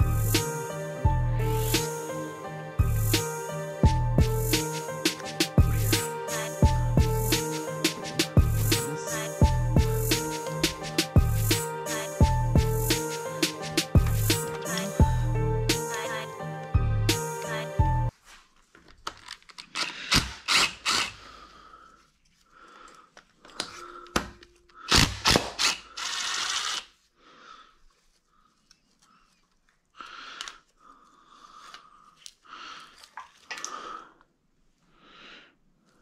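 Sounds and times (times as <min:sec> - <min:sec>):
rustling: 0:18.1 - 0:20.0, 0:21.4 - 0:24.6, 0:27.8 - 0:33.5.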